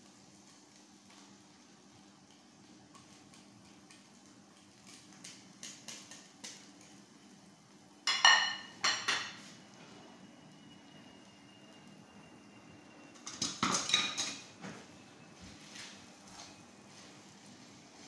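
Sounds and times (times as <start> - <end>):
plate and tongs clattering: 8.1 - 9.5, 13.3 - 14.5.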